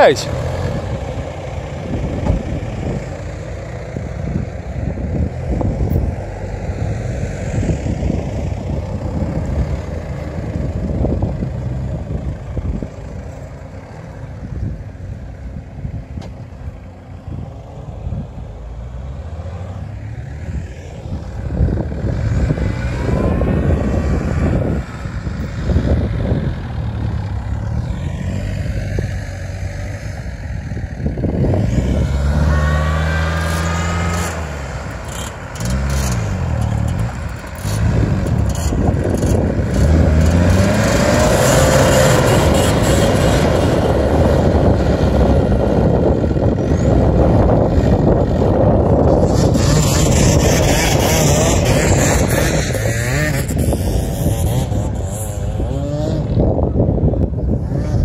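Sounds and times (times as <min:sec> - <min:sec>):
off-road engines revving: 0:00.0 - 0:14.9, 0:16.5 - 0:58.0.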